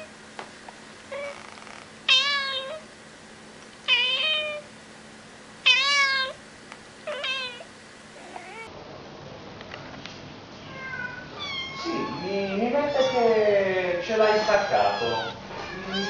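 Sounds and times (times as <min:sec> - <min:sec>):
cat meowing: 0:01.1 - 0:02.8, 0:03.9 - 0:04.7, 0:05.6 - 0:06.4, 0:07.1 - 0:08.7, 0:10.6 - 0:13.4, 0:14.1 - 0:16.0.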